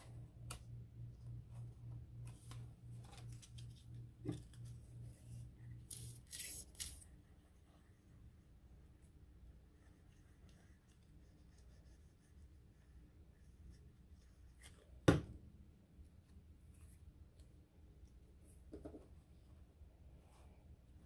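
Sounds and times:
paper rustling: 5.9s - 7.0s.

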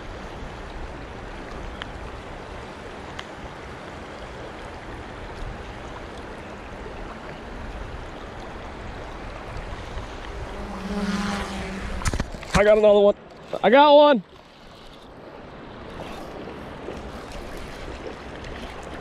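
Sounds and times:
faint ticks: 3.1s - 3.4s.

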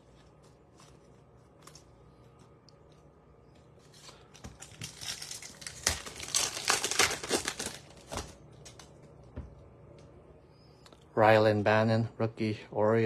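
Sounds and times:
foil wrapper crinkling: 3.8s - 8.9s.

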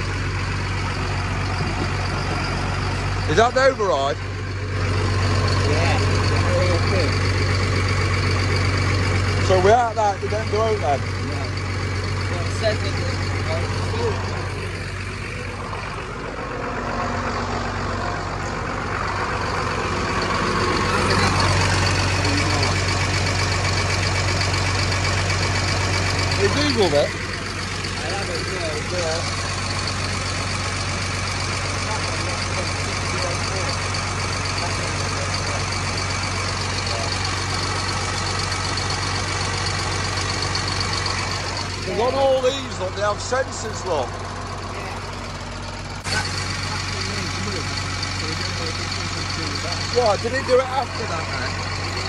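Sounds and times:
diesel engine idling: 0.0s - 52.0s.

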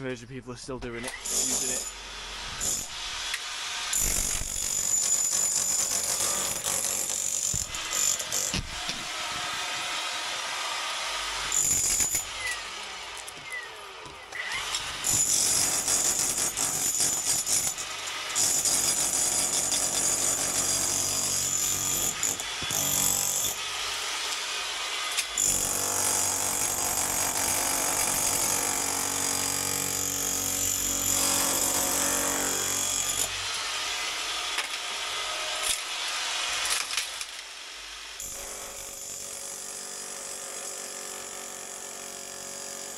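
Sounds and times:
rotary hammer chiselling brick: 13.4s - 23.6s.

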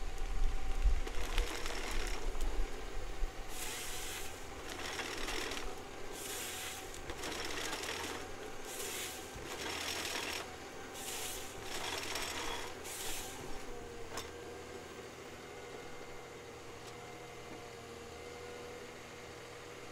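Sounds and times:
forestry machine humming and whining: 0.0s - 19.9s
short bursts of hiss: 3.5s - 4.4s, 6.1s - 6.9s, 8.6s - 9.3s, 11.0s - 11.6s, 12.8s - 13.4s.

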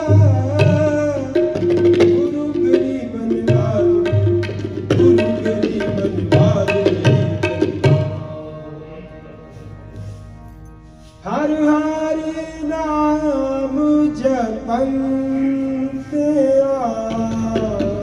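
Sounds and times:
man singing long notes: 0.0s - 10.2s
harmonium drone: 0.0s - 18.0s.

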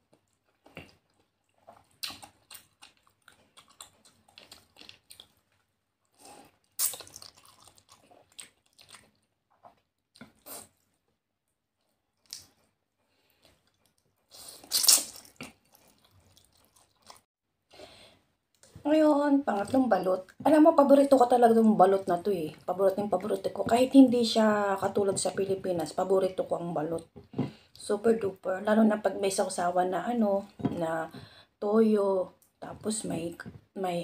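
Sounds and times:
wet chewing and smacking: 0.0s - 11.0s, 11.8s - 17.3s.

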